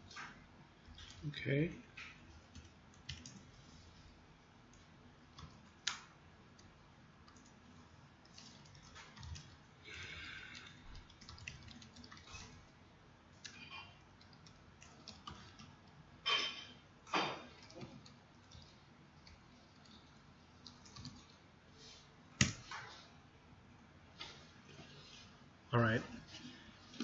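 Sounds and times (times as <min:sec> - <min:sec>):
keyboard typing: 0:02.0 - 0:03.5, 0:04.7 - 0:07.6, 0:08.2 - 0:12.6, 0:13.4 - 0:16.0, 0:17.4 - 0:21.4.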